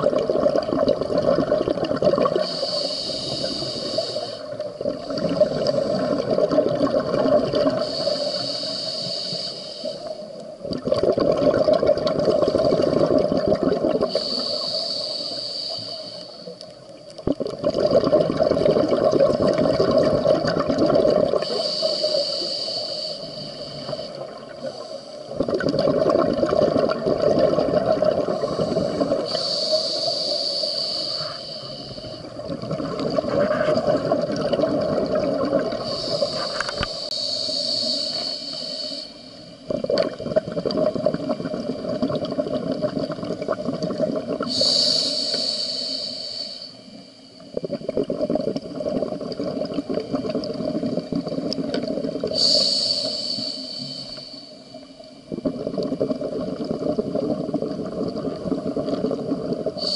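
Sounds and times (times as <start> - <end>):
bubbling regulator exhalations: 0.0 - 8.5, 10.6 - 15.3, 17.2 - 46.3, 47.5 - 54.4, 55.2 - 59.9
hissing regulator inhalations: 2.3 - 6.2, 7.6 - 10.6, 14.0 - 16.9, 21.3 - 25.6, 28.2 - 33.6, 35.6 - 39.8, 44.3 - 47.8, 50.8 - 56.3, 58.8 - 59.9.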